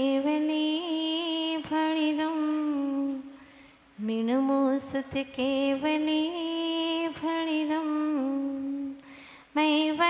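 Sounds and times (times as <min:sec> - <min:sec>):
woman chanting: 0:00.0 - 0:03.4, 0:04.0 - 0:09.0, 0:09.6 - 0:10.0.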